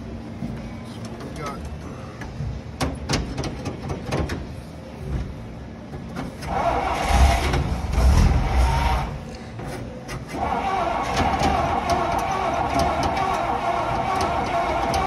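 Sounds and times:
truck engine cranking: 6.3s - 15.0s.

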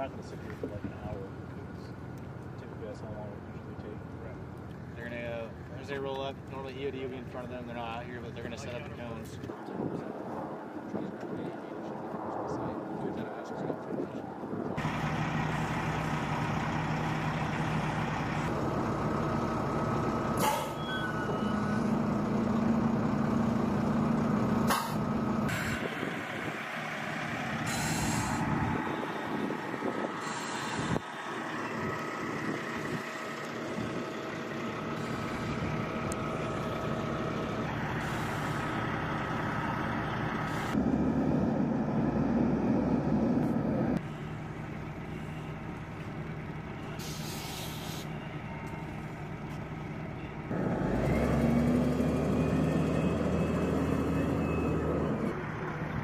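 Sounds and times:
heavy vehicle engine running: 14.6s - 56.0s
hissing air: 27.6s - 28.8s, 30.0s - 31.1s, 37.9s - 38.8s, 47.0s - 48.2s
held whine: 27.6s - 56.0s.

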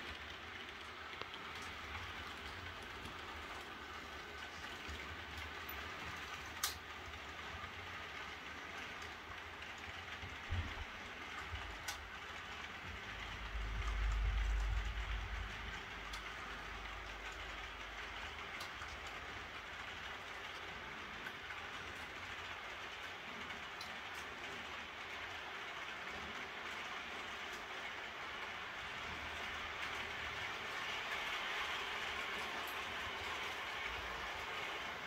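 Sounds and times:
clicks at rail joints: 0.0s - 7.2s, 8.1s - 25.2s
model train wheels rolling: 0.0s - 35.0s.

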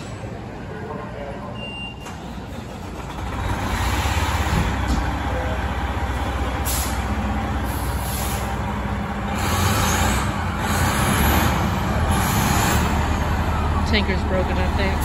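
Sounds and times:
fire engine diesel engine running: 1.8s - 15.0s
air brake hiss: 6.6s - 7.1s, 7.7s - 8.6s.

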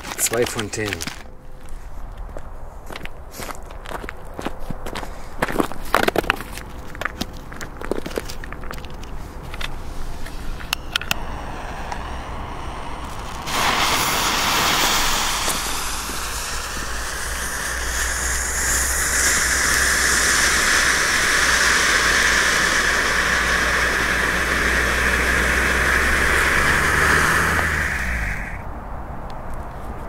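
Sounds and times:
fountain fireworks hissing: 10.2s - 28.6s.

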